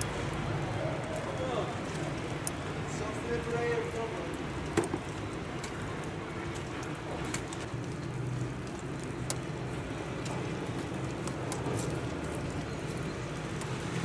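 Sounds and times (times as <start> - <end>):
faint clicks: 0.0 - 3.0, 6.5 - 13.8
distant city traffic rumble: 0.0 - 14.0.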